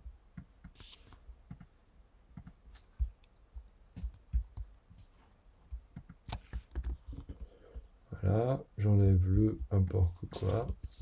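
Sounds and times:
keyboard taps and clicks: 1.4 - 1.7, 2.3 - 4.7, 5.7 - 7.5.

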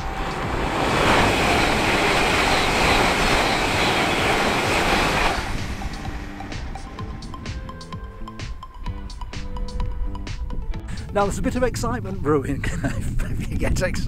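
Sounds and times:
high-speed train passing: 0.0 - 9.7.

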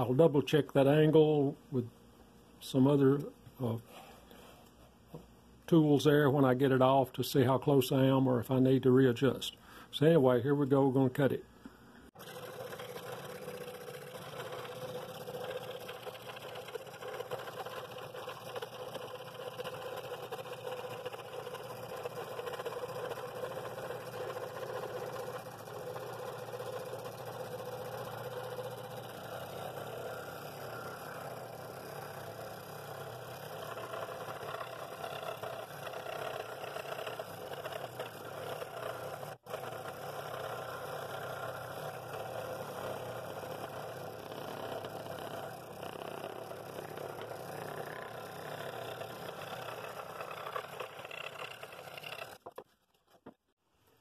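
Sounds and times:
scroll saw cutting wood: 12.1 - 52.7.

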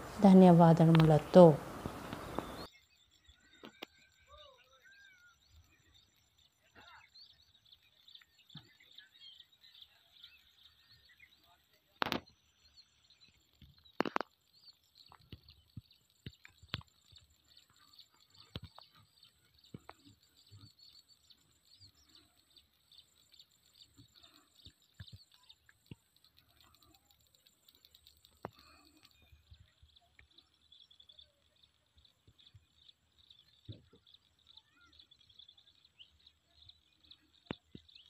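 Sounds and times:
birds chirping: 0.0 - 38.0
scattered clicks: 0.7 - 2.7, 12.0 - 12.3, 13.6 - 20.2, 22.0 - 30.4.

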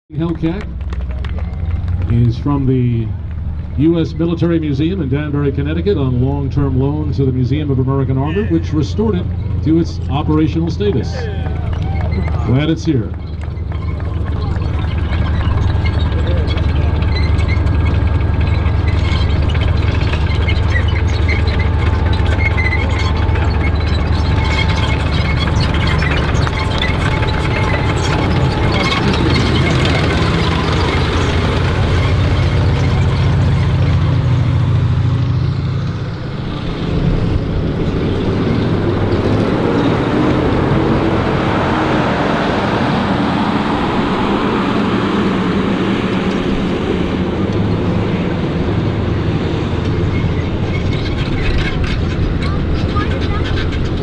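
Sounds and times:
armored car engine rumbling: 0.0 - 54.0
tank engine and steel tracks: 0.1 - 54.0.

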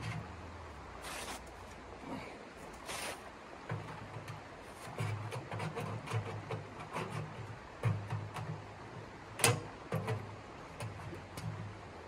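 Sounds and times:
metal stovepipe scraping: 2.9 - 8.6.

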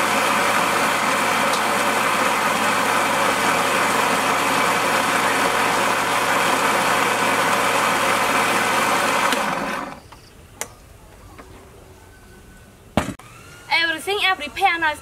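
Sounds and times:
blender running: 0.0 - 10.0.

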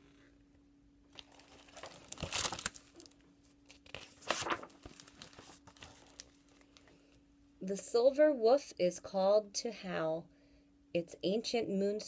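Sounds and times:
faint steady hum: 0.0 - 12.0
book pages rustling: 1.1 - 6.9.

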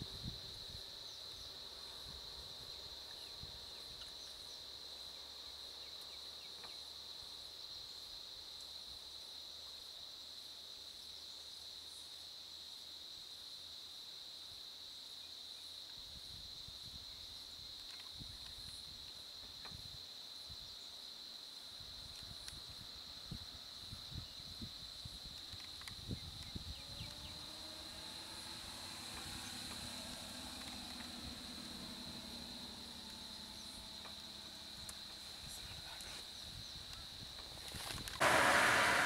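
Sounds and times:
high-pitched insect drone: 23.8 - 39.0.

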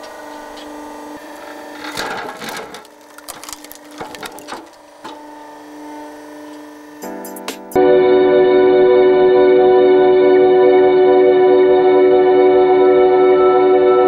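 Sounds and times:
log splitter humming: 0.0 - 7.2
wood cracking apart: 1.6 - 5.3
split wood pieces falling: 1.7 - 5.3.

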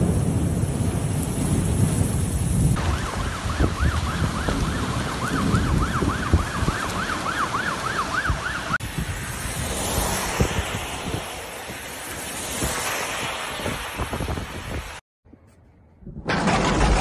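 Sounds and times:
rain and wind rushing: 0.0 - 15.0, 16.3 - 17.0
siren yelping: 2.8 - 8.8.

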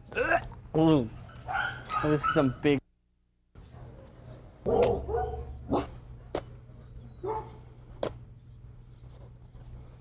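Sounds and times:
dog barking: 1.4 - 2.6, 3.8 - 6.0, 7.2 - 7.6
steady low hum: 2.8 - 10.0.

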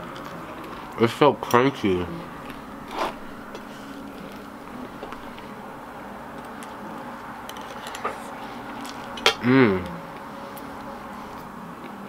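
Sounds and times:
low background hum: 0.0 - 12.0
mouth eating sounds: 9.4 - 10.3.

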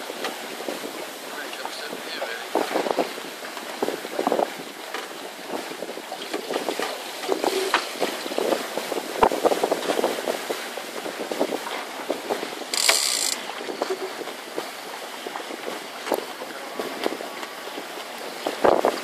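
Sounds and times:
water slapping boat hull: 0.0 - 19.0
wind on microphone: 0.0 - 19.0.

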